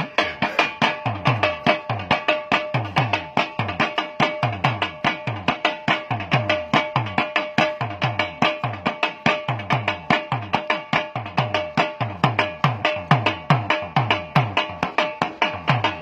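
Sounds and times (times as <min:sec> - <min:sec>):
folk drumming on a dhol: 0:00.0 - 0:16.0.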